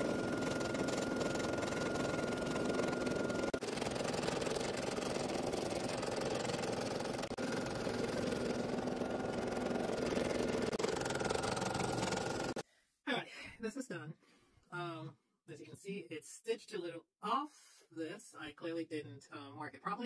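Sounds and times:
embroidery machine stitching: 0:00.0 - 0:12.6.

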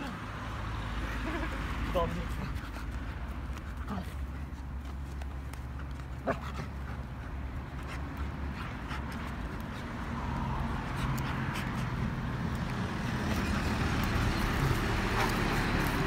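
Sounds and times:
low engine hum: 0:00.2 - 0:16.0.

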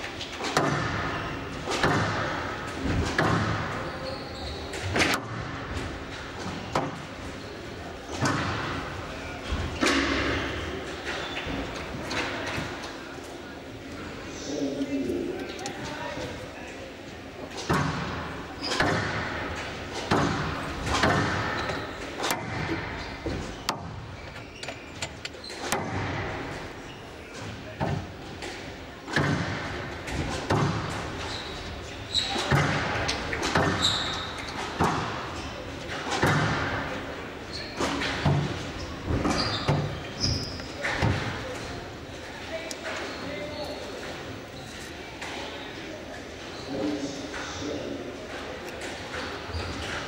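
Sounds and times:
squash ball hits: 0:00.4 - 0:03.7, 0:20.0 - 0:21.6, 0:30.3 - 0:31.0, 0:36.1 - 0:36.9.

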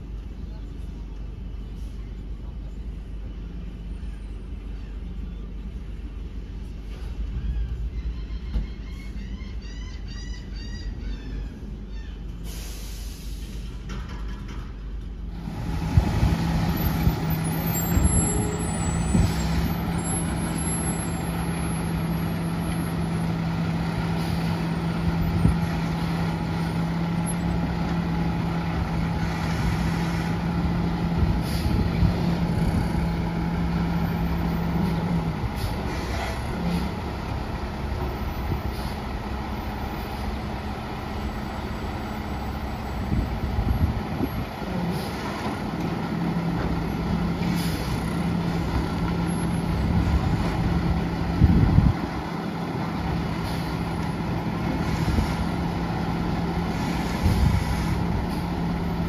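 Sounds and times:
garbage truck engine hum: 0:00.0 - 0:59.0.

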